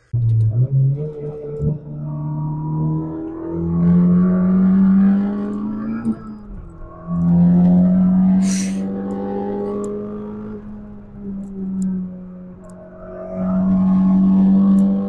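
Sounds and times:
sports car engine accelerating: 0:00.0 - 0:15.0
short hiss: 0:08.4 - 0:08.8.

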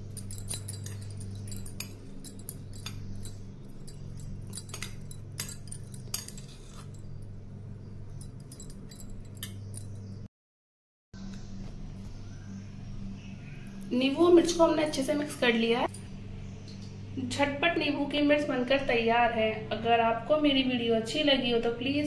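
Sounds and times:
spoon clinking against metal bowl: 0:00.0 - 0:07.3, 0:08.1 - 0:10.1
steady low hum: 0:00.0 - 0:10.3, 0:11.2 - 0:22.0.

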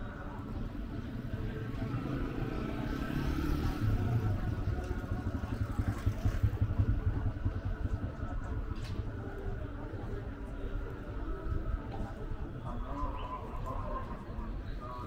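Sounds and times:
street noise rumble: 0:00.0 - 0:15.0
motorcycle engine passing: 0:01.0 - 0:08.4.

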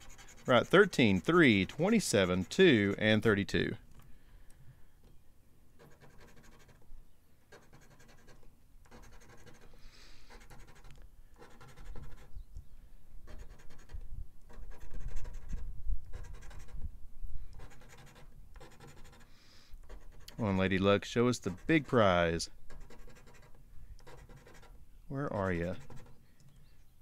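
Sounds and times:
coin scratching lottery ticket: 0:00.0 - 0:03.7, 0:05.8 - 0:06.8, 0:07.5 - 0:12.4, 0:13.2 - 0:16.8, 0:17.6 - 0:24.8, 0:25.5 - 0:26.2.

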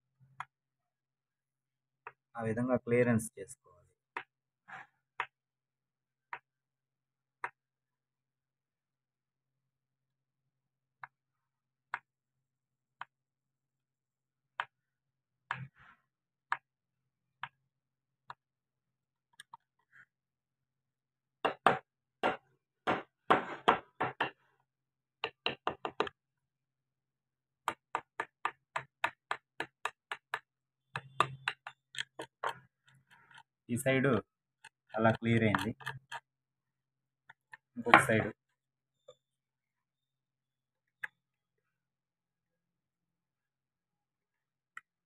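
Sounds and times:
chisel tapping into wood: 0:21.4 - 0:24.4, 0:25.2 - 0:26.2, 0:27.6 - 0:33.6, 0:34.6 - 0:36.3.

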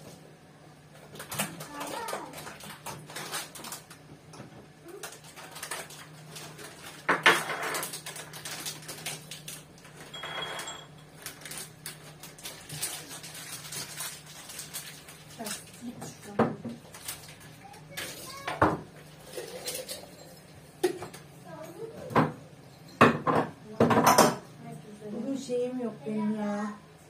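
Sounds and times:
kitchenware clattering: 0:05.6 - 0:11.6, 0:12.7 - 0:24.5.

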